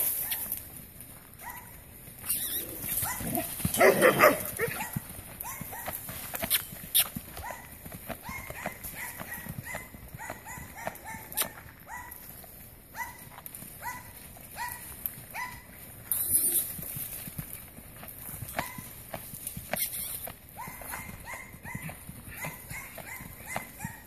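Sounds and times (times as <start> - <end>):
horse hoofbeats on dirt: 0.0 - 24.0
short rising squeak: 2.2 - 3.0, 16.1 - 16.8, 19.8 - 20.2.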